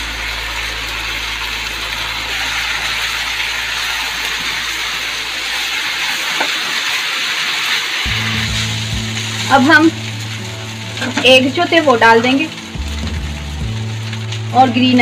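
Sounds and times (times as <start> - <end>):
low hum: 0.0 - 5.8, 8.1 - 15.0
food sizzling in a wok: 0.0 - 15.0.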